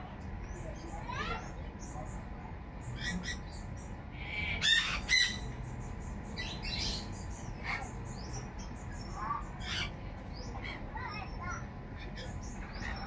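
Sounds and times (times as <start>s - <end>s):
low background noise: 0.0s - 13.0s
birds chirping: 0.2s - 13.0s.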